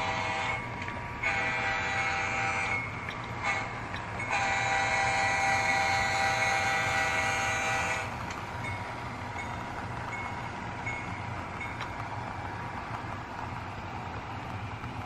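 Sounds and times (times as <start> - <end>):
locomotive horn chord: 0.0 - 8.2.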